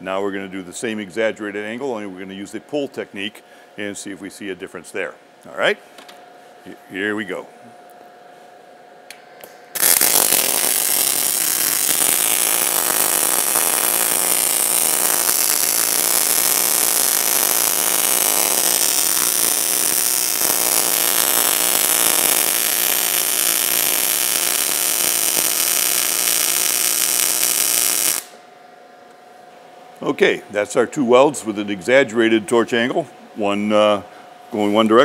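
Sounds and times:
welding arc burning: 9.7 - 28.4.

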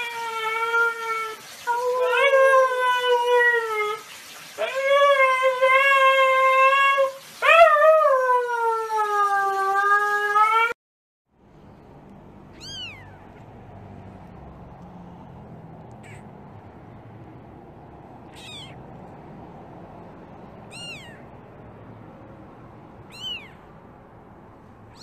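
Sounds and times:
puppy howling: 0.0 - 10.8, 20.7 - 21.2, 23.1 - 23.6
kitten mewing: 12.5 - 13.4, 16.0 - 16.3, 18.2 - 18.9, 20.7 - 21.3, 23.0 - 23.7.

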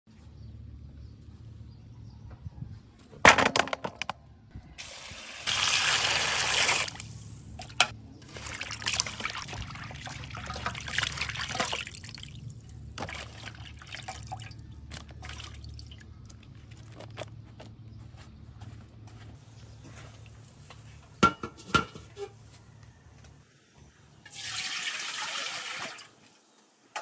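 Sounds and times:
splashing and sloshing water: 4.8 - 17.1.

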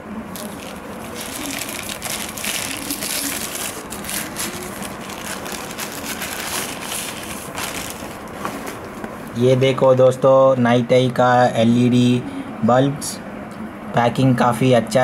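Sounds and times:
plastic bag crinkling: 0.3 - 9.0.

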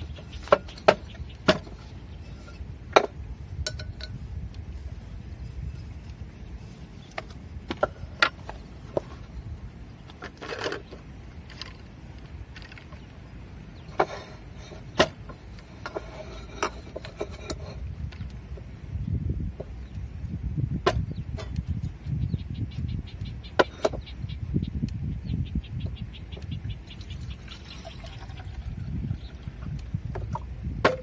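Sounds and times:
camping gear clicking and knocking: 0.0 - 1.9, 10.1 - 13.0
wind rumble on microphone: 0.0 - 31.0
bottle screw cap scraping: 15.7 - 17.9.

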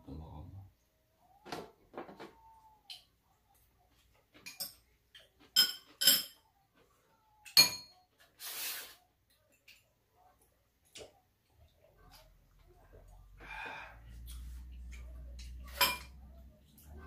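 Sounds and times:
metal utensils clinking on bowls: 4.3 - 6.5, 7.5 - 8.0, 14.9 - 17.0.

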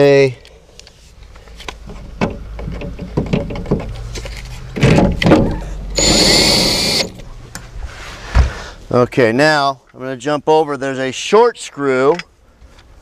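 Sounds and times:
drill whining: 6.0 - 7.2.

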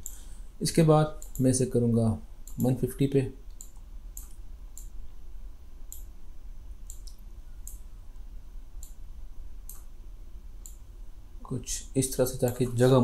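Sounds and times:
faint low hum: 0.0 - 13.0
computer mouse clicking: 1.2 - 1.5, 2.4 - 2.8, 3.5 - 5.0, 5.9 - 6.1, 6.8 - 7.8, 8.8 - 9.0, 9.6 - 9.9.

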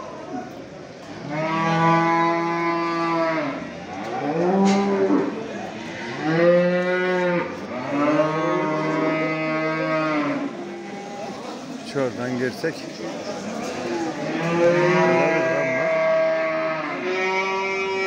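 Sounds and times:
cattle mooing: 1.2 - 11.4, 13.7 - 18.0.

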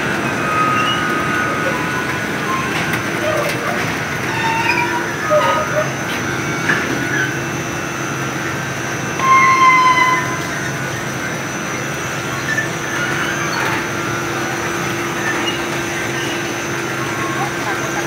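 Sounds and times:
high squeal: 0.0 - 18.0
steady mechanical hum: 0.0 - 18.0
faint squeaks: 0.3 - 6.0.

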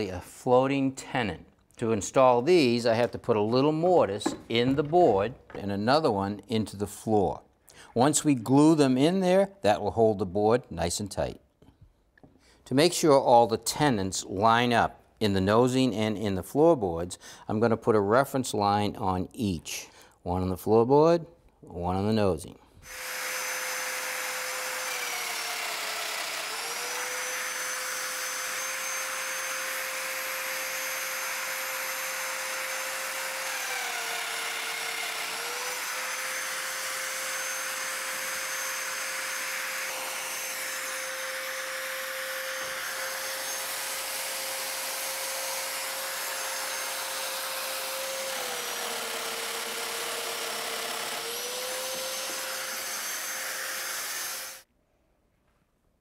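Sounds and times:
joiner motor whine: 22.9 - 54.6.

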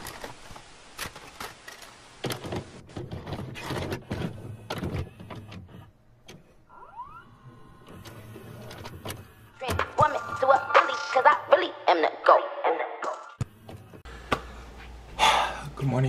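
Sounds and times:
rising mechanical whine: 6.7 - 10.9.

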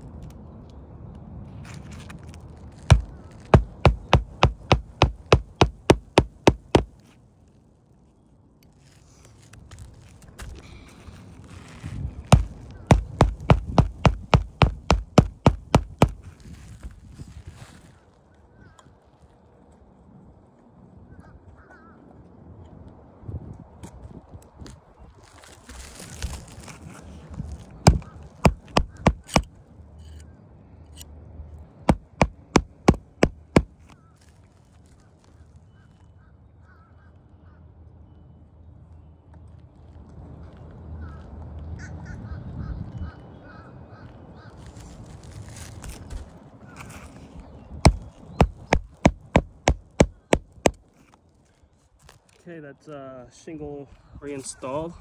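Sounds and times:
hammer striking nail: 2.9 - 6.9, 12.3 - 16.2, 27.9 - 29.5, 31.9 - 33.7, 47.9 - 50.8.

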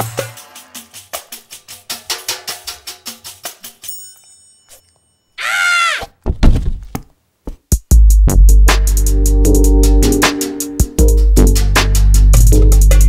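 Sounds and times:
light percussive cartoon music: 0.0 - 4.2, 7.7 - 13.0
loud cry rising and falling: 5.4 - 6.1
heavy thumps of falling: 6.2 - 7.6.

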